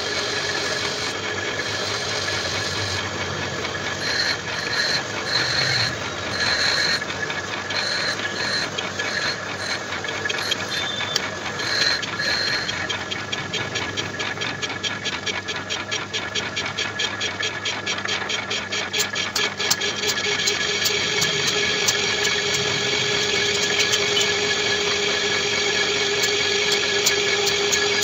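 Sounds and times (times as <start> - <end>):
lathe whirring: 0.0 - 28.0
high squeals from cutting: 3.9 - 7.0, 10.3 - 12.9.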